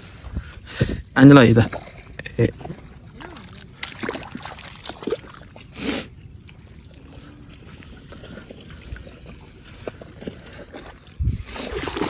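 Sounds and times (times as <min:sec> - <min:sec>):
mud squelching: 0:00.0 - 0:12.0
water trickling: 0:01.2 - 0:12.0
wet splash: 0:01.7 - 0:05.8, 0:06.5 - 0:12.0.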